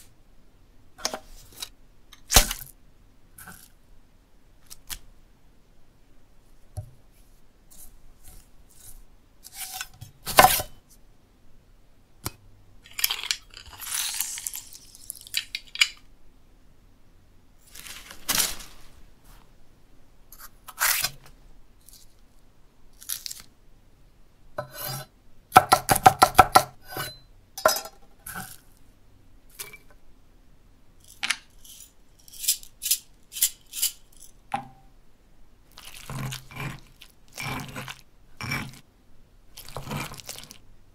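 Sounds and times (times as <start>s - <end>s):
pestle grinding in stone mortar: 35.7s - 38.8s, 39.6s - 40.6s.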